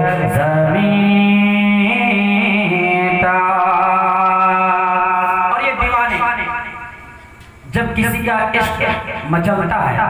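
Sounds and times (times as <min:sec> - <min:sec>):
man singing into a microphone: 0:00.0 - 0:06.6.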